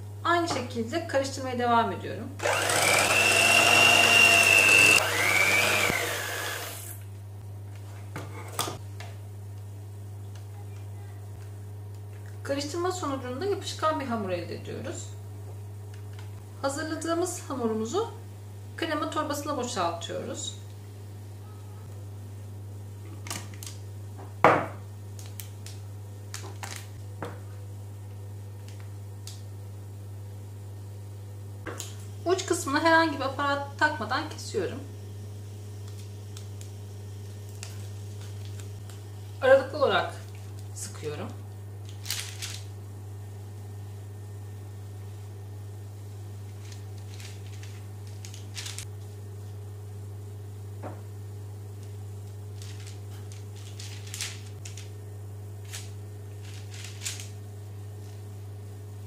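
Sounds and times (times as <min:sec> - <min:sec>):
electric hand mixer whine: 0:02.4 - 0:07.0
low steady hum: 0:06.6 - 0:59.0.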